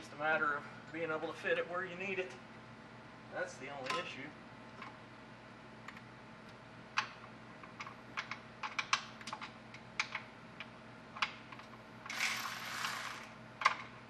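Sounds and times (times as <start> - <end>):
electric ratchet whirring: 12.1 - 13.4.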